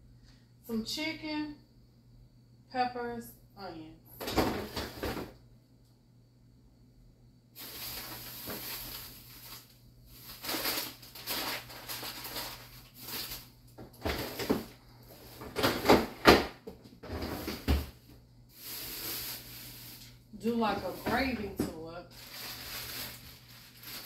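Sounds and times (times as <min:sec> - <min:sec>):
food packages rustling: 0:07.6 - 0:16.2, 0:17.0 - 0:21.5, 0:22.1 - 0:24.0.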